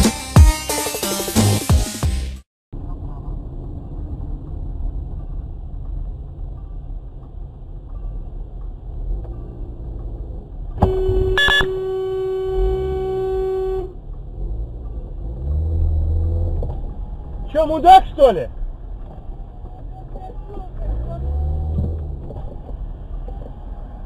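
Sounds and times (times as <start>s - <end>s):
car interior road rumble: 2.8s - 24.0s
car horn blaring: 10.8s - 14.0s.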